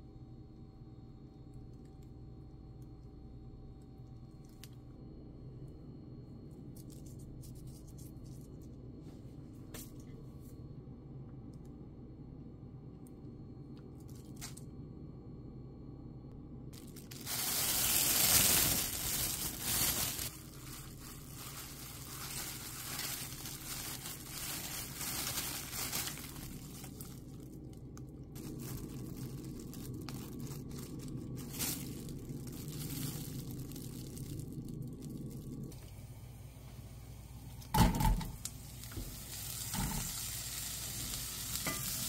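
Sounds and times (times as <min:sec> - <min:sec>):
plastic bag crinkling: 0:16.8 - 0:35.7.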